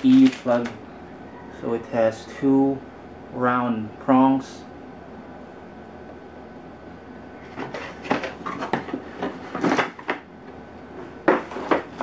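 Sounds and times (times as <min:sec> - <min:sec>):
cardboard scraping and rustling: 0:07.4 - 0:10.2.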